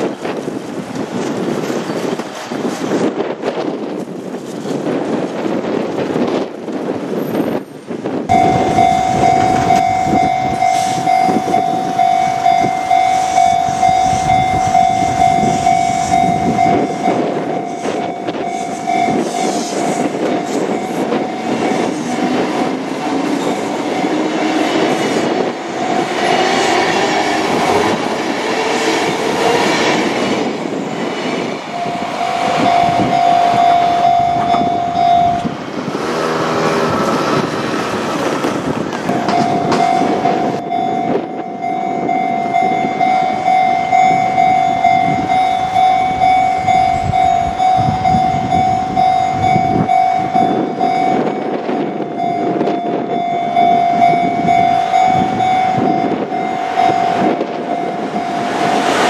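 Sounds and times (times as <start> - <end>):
level crossing alarm tone: 8.3 - 28.4, 31.5 - 35.6, 39.0 - 59.0
train motors whining: 8.3 - 59.0
train wheels clattering over rails: 13.7 - 41.4.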